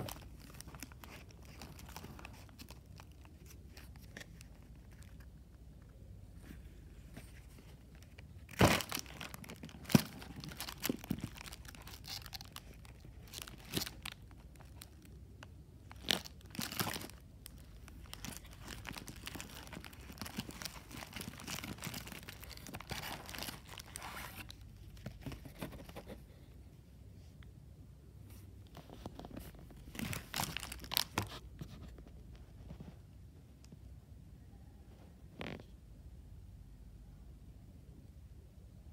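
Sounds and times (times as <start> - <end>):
plastic packaging crinkling: 0.0 - 5.3, 7.2 - 26.0, 29.1 - 31.4.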